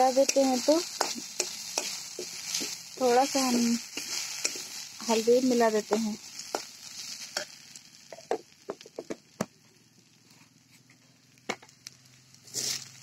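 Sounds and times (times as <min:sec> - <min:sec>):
metal spatula scraping vegetables in pan: 0:00.0 - 0:07.7, 0:12.4 - 0:13.0
faint sizzle: 0:00.0 - 0:13.0.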